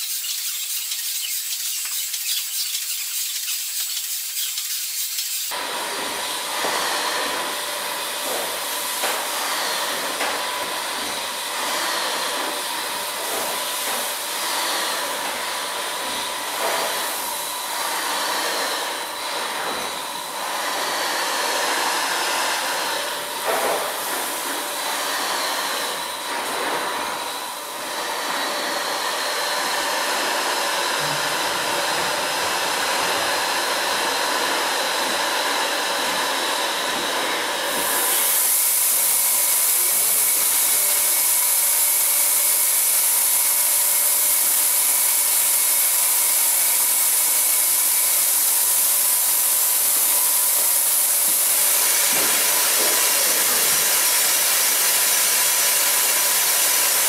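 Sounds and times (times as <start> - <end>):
steam engine hissing: 0.0 - 5.6.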